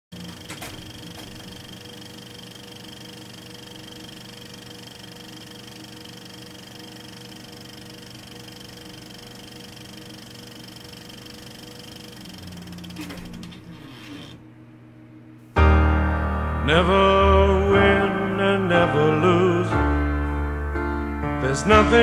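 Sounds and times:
high-pitched whine: 0.1s - 15.4s
mechanical whirring hum: 0.1s - 15.9s.

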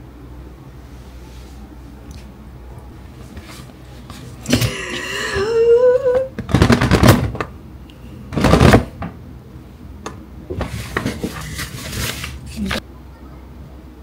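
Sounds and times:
paper bag rustling: 10.6s - 12.8s.

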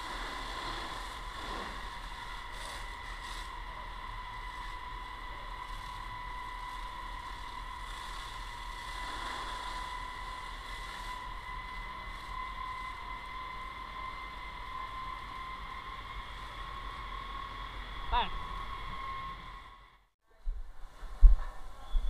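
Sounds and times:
fire hose spraying water: 0.0s - 17.0s
high-pitched whine: 0.0s - 20.1s.

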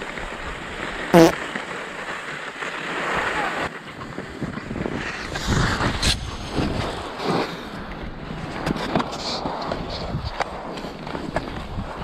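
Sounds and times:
skis scraping over snow: 0.0s - 12.0s
wind buffeting microphone: 3.8s - 12.0s.

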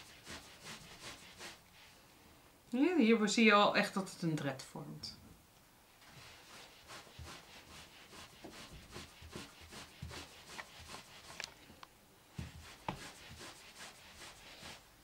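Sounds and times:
soft rubbing on towel: 0.0s - 2.1s, 5.9s - 11.5s, 12.3s - 15.0s.

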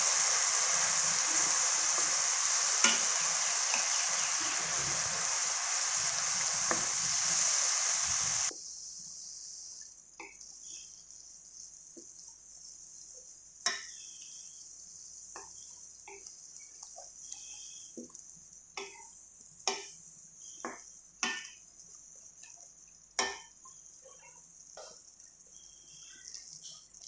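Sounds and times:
paste sizzling in oil: 0.0s - 17.9s.

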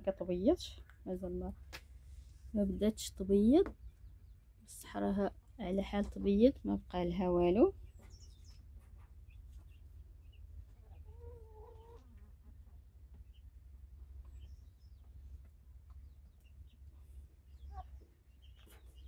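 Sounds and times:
hens calling: 10.3s - 13.2s.

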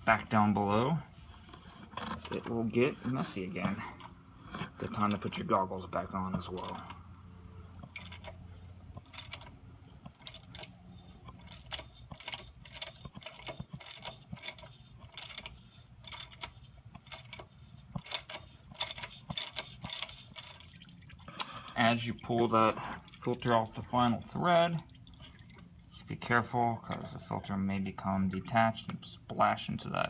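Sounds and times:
ratchet clicking: 6.1s - 20.9s.

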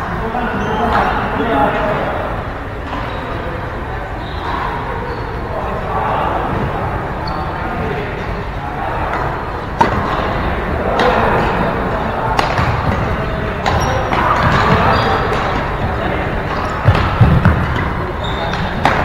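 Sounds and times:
sports hall hum: 0.0s - 19.0s
racket striking shuttlecock: 9.8s - 10.3s, 12.4s - 15.6s, 16.5s - 19.0s.

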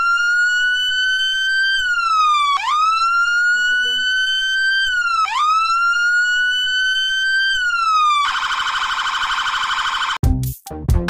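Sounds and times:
electronic siren wailing: 0.0s - 10.2s.

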